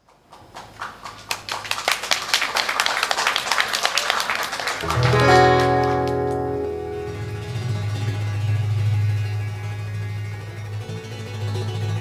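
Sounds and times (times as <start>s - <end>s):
audience clapping: 0.0s - 7.6s
acoustic guitar chord: 4.8s - 10.8s.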